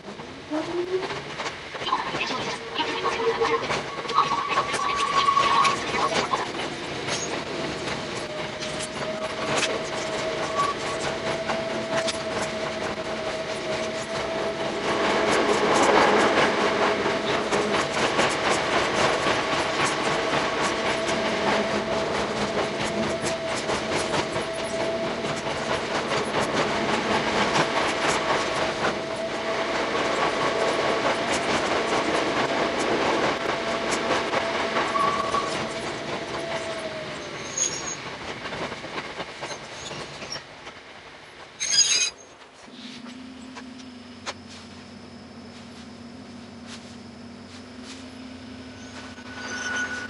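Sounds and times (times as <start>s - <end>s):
train wheels clicking over rails: 3.6s - 41.6s.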